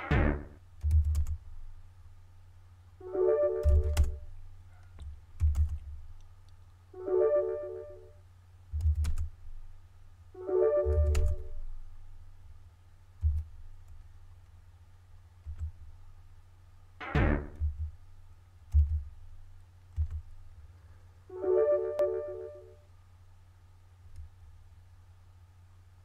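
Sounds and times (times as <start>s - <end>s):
synthesizer chords: 0.0s - 0.6s, 3.0s - 4.3s, 7.0s - 8.1s, 10.4s - 11.7s, 17.0s - 17.8s, 21.3s - 22.8s
low bass thumps: 0.0s - 1.4s, 17.2s - 18.0s.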